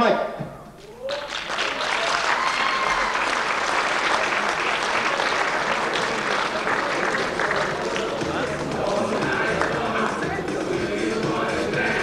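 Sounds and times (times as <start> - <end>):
audience applauding: 0.8 - 10.2.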